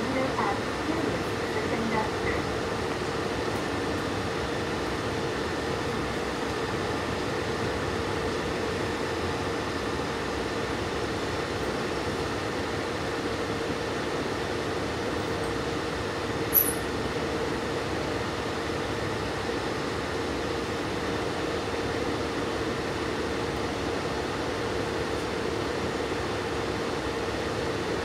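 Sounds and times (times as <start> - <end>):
railcar cabin rumble: 0.0 - 7.9
sharp high-pitched click: 16.5 - 16.9.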